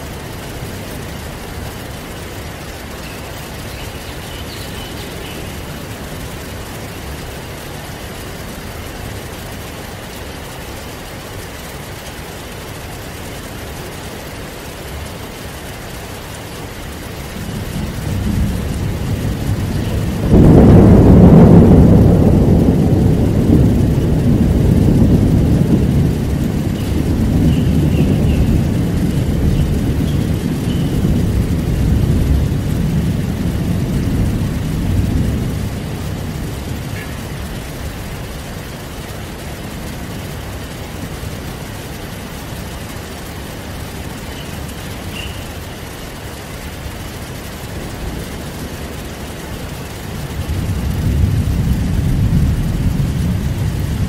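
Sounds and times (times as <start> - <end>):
heavy rain: 0.0 - 54.0
thunder rumbling: 0.0 - 54.0
loud thunderclap: 17.2 - 43.9, 44.5 - 54.0.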